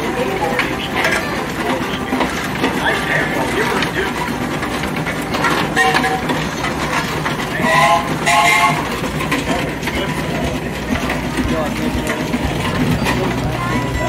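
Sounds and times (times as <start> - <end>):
engine running gear clatter: 0.0 - 14.0
steam whistle toots: 5.7 - 6.4, 7.6 - 9.0.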